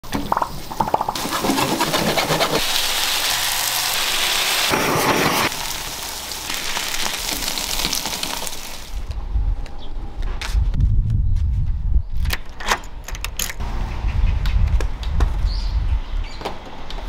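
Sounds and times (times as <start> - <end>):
batter sizzling in a pan: 2.4 - 9.0.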